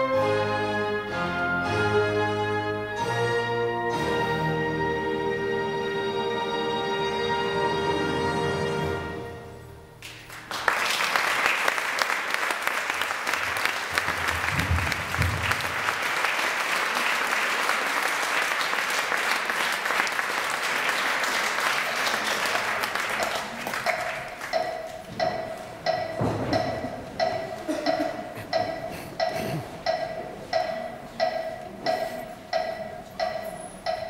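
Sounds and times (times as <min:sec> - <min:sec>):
audience applause: 0:10.0 - 0:24.6.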